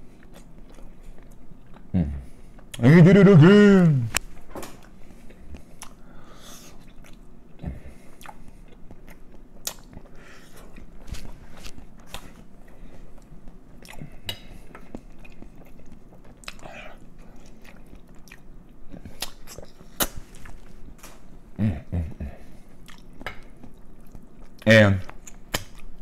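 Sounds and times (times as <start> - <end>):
man chewing with wet smacks: 0.0 - 2.8, 4.2 - 26.0
short low vocal sounds: 1.9 - 4.2.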